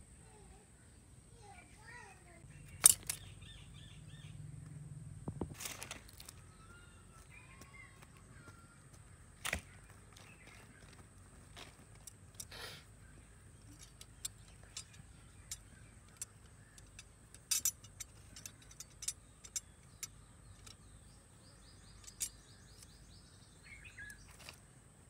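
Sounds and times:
bird chirps: 0:01.9 - 0:04.8, 0:12.5 - 0:24.6.

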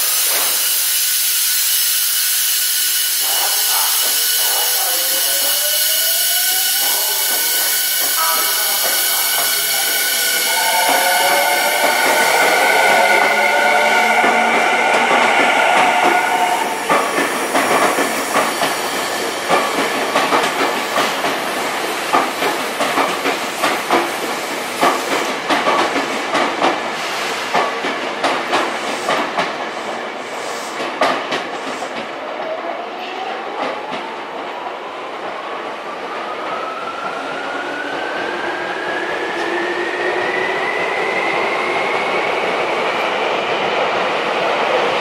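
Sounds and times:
train wheels clicking over rail joints: 0:16.9 - 0:29.7, 0:30.8 - 0:32.0.

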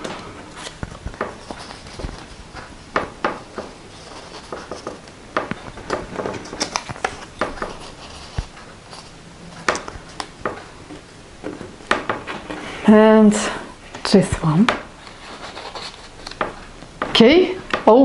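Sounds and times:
paper rustling and sliding: 0:00.0 - 0:10.7, 0:15.0 - 0:16.6.

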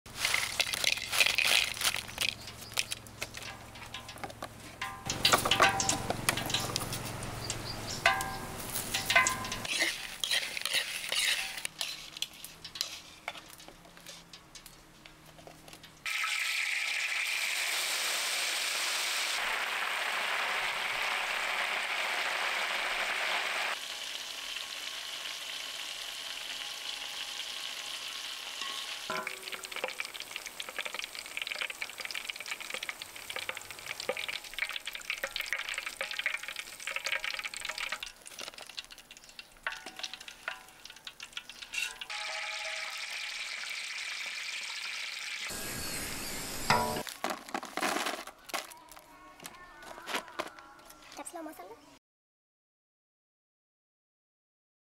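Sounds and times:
wire skimmer clinking and scraping: 0:00.1 - 0:16.0, 0:28.5 - 0:43.6, 0:46.4 - 0:50.6
deep-frying oil sizzle: 0:04.8 - 0:47.0
crickets clicking in bowl: 0:29.5 - 0:41.8.

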